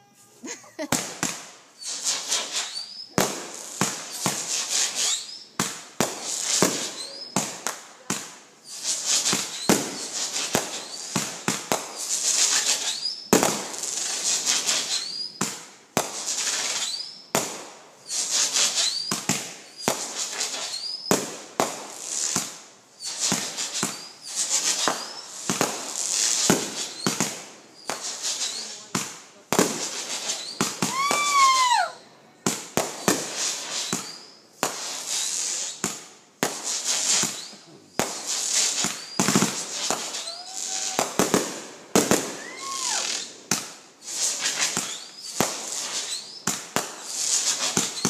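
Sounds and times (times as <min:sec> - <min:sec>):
fireworks bangs: 0:00.0 - 0:48.0
fireworks crackling: 0:00.0 - 0:48.0
rising fireworks whistles: 0:00.0 - 0:48.0.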